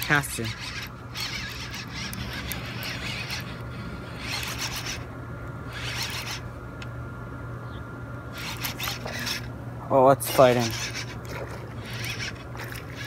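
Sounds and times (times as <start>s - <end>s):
fishing reel cranking raspily: 0.0s - 5.1s, 5.7s - 6.5s, 8.3s - 9.5s, 10.2s - 13.0s.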